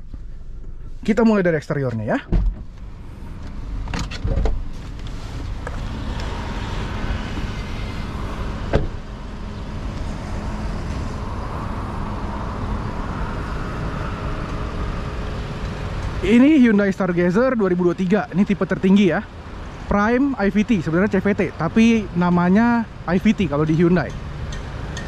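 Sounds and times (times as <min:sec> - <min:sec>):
car door shutting: 0:02.3 - 0:02.8, 0:03.8 - 0:04.8, 0:08.6 - 0:09.0.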